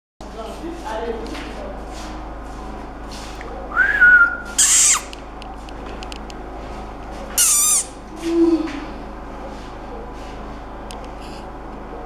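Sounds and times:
puppy whining: 4.6s - 5.1s
puppy yelping: 4.6s - 5.1s.

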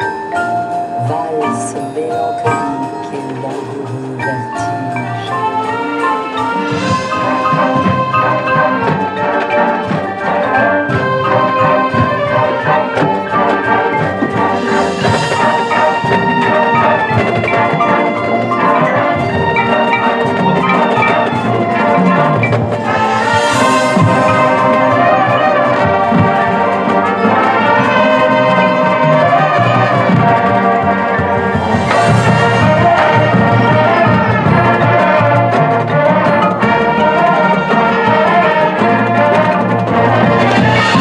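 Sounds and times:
mallet percussion: 0.0s - 41.0s
sustained brass: 4.9s - 41.0s.

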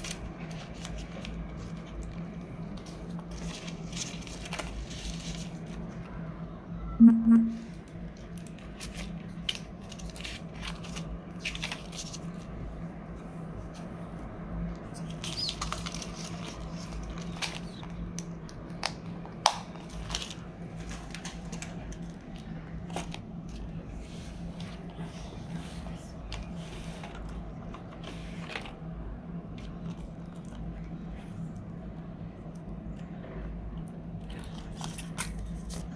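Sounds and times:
plastic crinkling and rustling: 0.0s - 6.0s, 8.2s - 12.6s, 15.0s - 19.0s, 19.7s - 23.7s
steady low hum: 0.0s - 35.9s.

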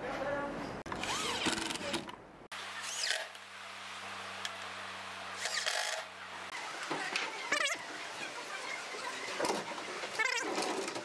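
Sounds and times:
drill driver motor driving screw: 0.9s - 2.1s.

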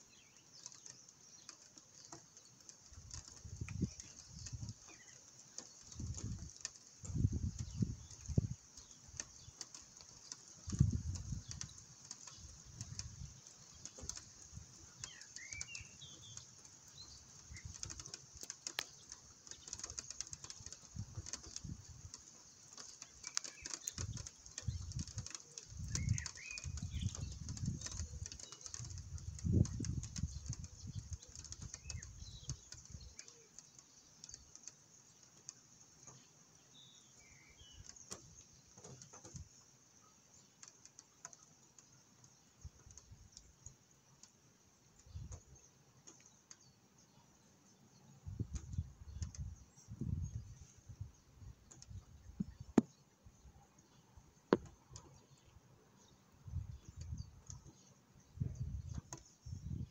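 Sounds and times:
birds chirping: 0.0s - 59.9s.

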